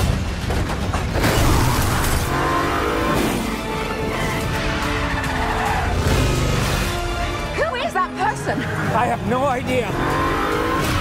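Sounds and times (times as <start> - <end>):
background music: 0.0 - 11.0
car engines revving: 1.2 - 11.0
vehicles rushing past: 3.1 - 11.0.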